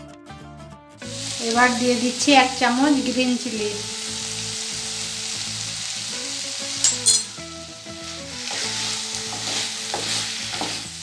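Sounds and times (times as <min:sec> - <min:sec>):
vegetables sizzling in hot oil: 0:01.0 - 0:11.0.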